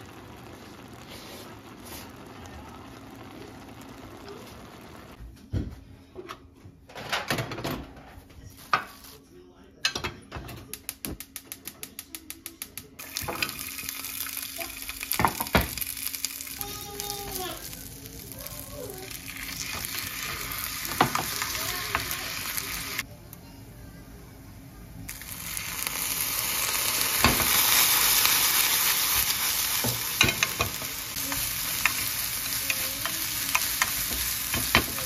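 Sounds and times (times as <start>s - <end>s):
fish cake sizzling in frying pan: 0.0s - 5.2s, 13.0s - 23.1s, 25.1s - 35.0s
chopsticks stirring: 29.8s - 35.0s.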